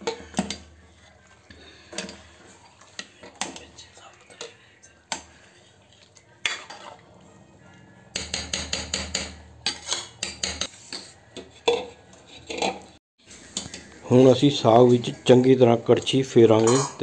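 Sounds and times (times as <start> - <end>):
ladle clinking against metal pot: 16.6 - 17.0.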